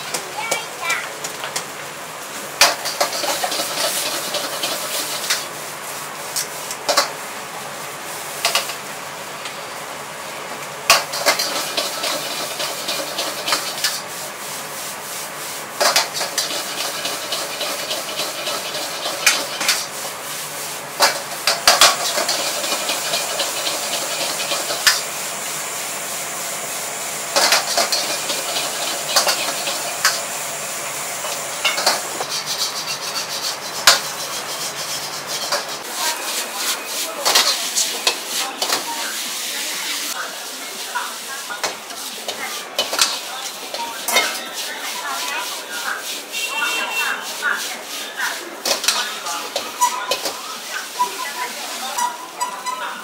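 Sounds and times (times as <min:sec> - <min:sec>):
gas burner hissing: 0:00.0 - 0:52.4
metal ladle scraping a wok: 0:02.6 - 0:05.6, 0:10.9 - 0:14.3, 0:15.8 - 0:25.1, 0:27.4 - 0:30.4, 0:31.2 - 0:39.9, 0:41.8 - 0:53.0.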